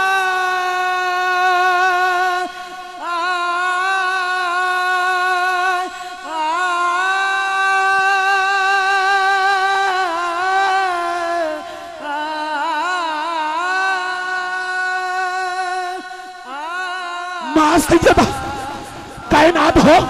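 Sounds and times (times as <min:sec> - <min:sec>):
man singing long notes: 0:00.0 - 0:20.0
singer breathing: 0:05.9 - 0:06.3.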